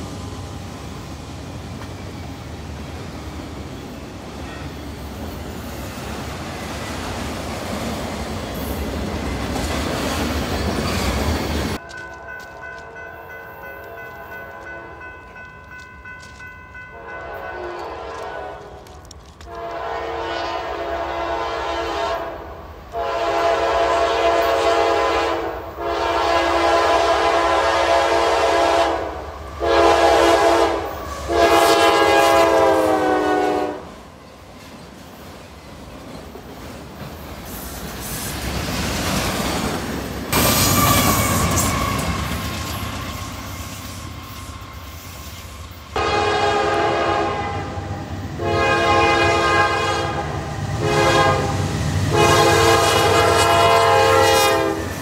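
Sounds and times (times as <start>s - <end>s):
train rumbling past: 0.0s - 55.0s
locomotive air horn blasts: 16.9s - 34.0s, 46.0s - 55.0s.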